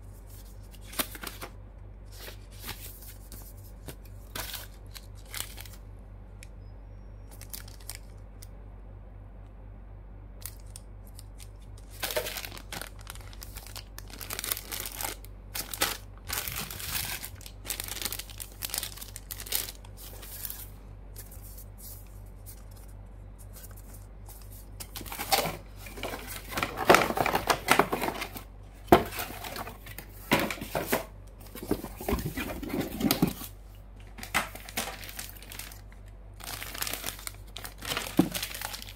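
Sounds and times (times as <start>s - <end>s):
plastic bags crinkling: 4.2s - 5.8s, 7.3s - 8.2s, 10.4s - 33.5s, 34.1s - 38.9s.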